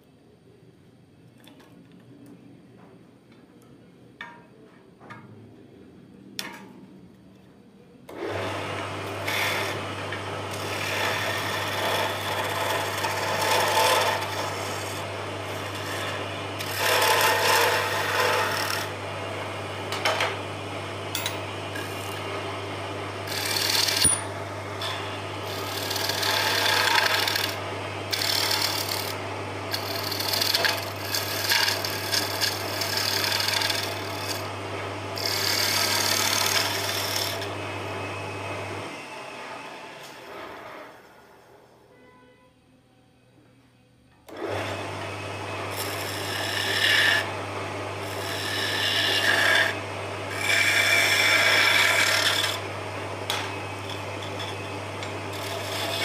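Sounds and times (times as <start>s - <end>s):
turning tool scraping wood: 8.1s - 19.2s, 21.1s - 38.3s, 44.3s - 56.0s
wood lathe motor humming: 8.1s - 41.1s, 44.3s - 56.0s.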